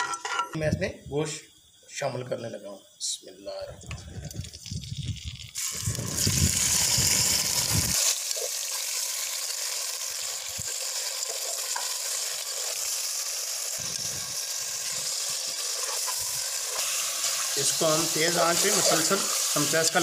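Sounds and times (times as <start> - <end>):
meat sizzling in hot oil: 4.3 - 20.0.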